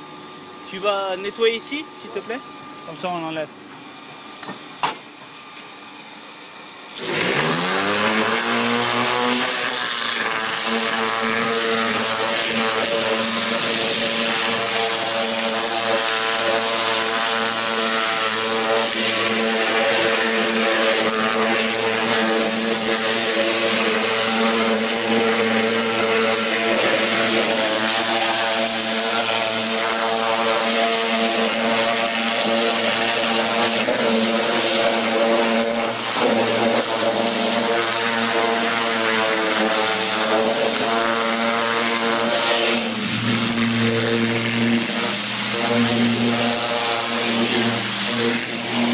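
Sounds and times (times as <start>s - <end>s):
pressure cleaner motor humming: 0.0s - 48.9s
water jet hissing: 6.9s - 48.9s.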